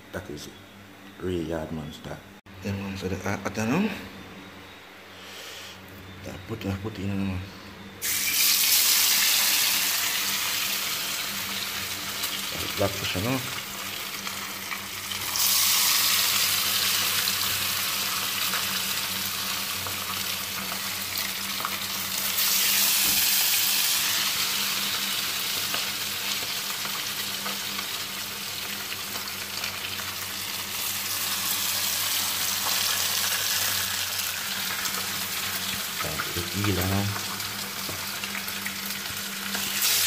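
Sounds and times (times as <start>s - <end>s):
fish frying in hot oil: 8.0s - 40.0s.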